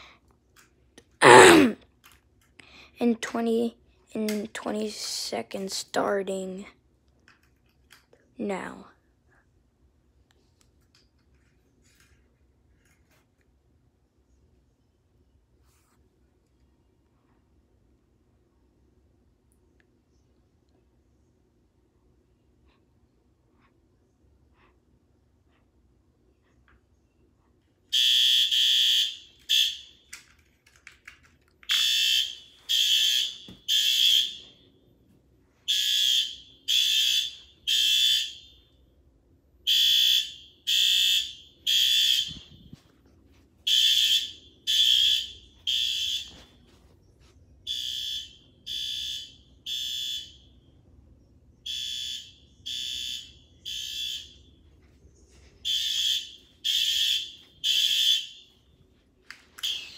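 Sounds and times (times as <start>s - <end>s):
fire alarm horn blasts: 27.9s - 30.0s, 31.7s - 34.6s, 35.7s - 38.7s, 39.6s - 42.8s, 43.7s - 46.6s, 47.7s - 50.5s, 51.6s - 54.6s, 55.6s - 58.6s.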